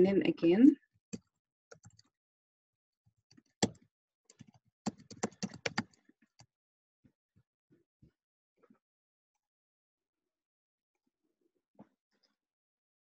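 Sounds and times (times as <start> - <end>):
keyboard typing: 3.6 - 6.0.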